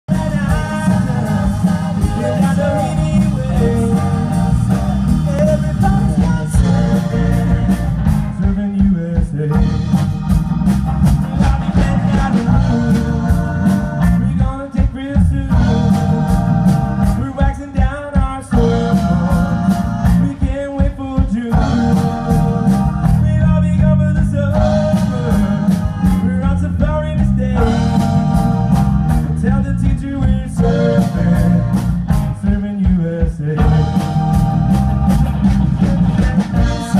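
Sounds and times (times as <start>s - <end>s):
live pop-rock band: 0.0s - 36.9s
men singing: 0.1s - 10.0s, 11.2s - 36.9s.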